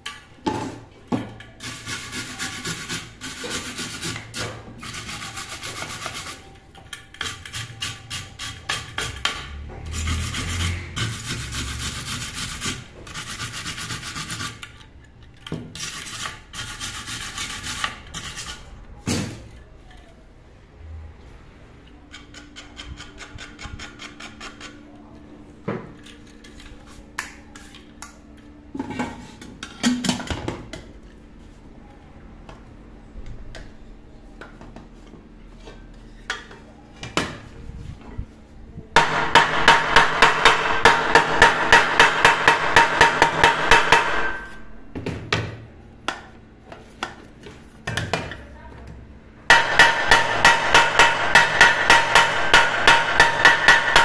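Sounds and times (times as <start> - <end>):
hammer tapping metal pot: 39.0 - 44.5, 49.5 - 54.0.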